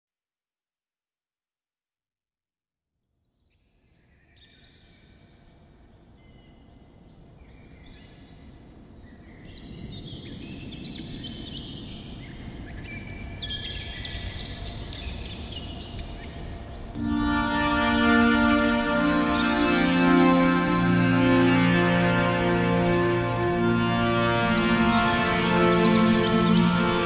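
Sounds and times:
birds chirping and singing: 17.3 - 21.2, 23.0 - 27.0.

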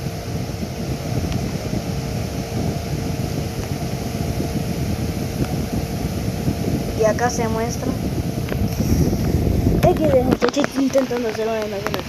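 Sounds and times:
faint steady hum: 0.0 - 12.0
low rumbling background noise: 0.0 - 12.0.

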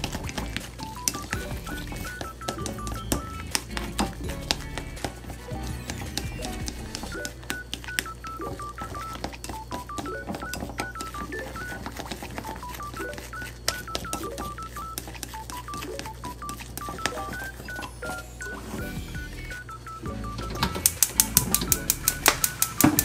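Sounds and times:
light background music: 0.0 - 23.0
chopsticks clicking against glass bowl: 20.8 - 23.0.

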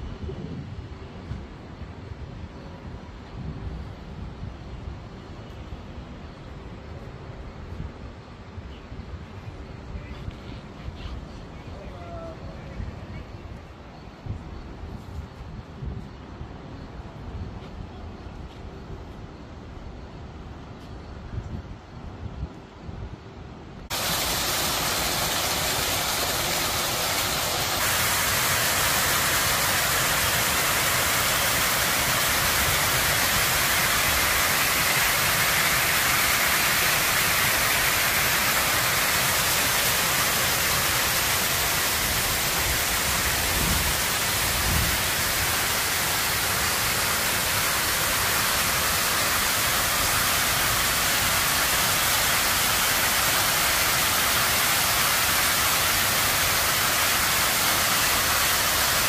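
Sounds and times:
waterfall splashing into pool: 23.9 - 59.0.

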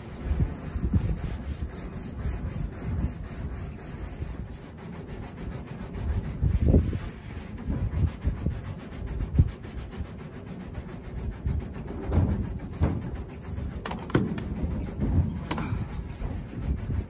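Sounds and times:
scuffing against metal roof: 11.8 - 17.0.

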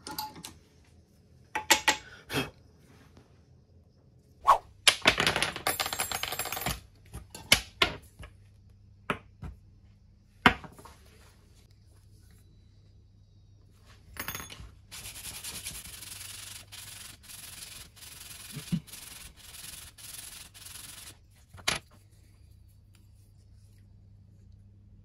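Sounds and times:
metal tube rubbing on sandpaper: 14.9 - 21.2.

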